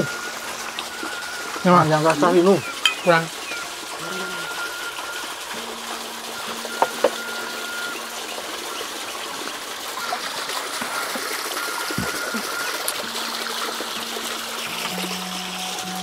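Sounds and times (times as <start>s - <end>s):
water pouring from a pipe: 0.0s - 16.0s.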